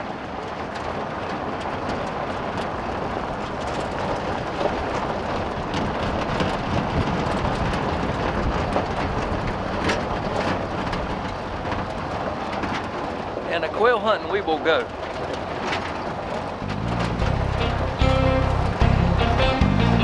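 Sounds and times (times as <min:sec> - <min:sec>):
small clicks and rattles: 0:00.0 - 0:18.0
tyres rumbling on gravel: 0:00.0 - 0:20.0.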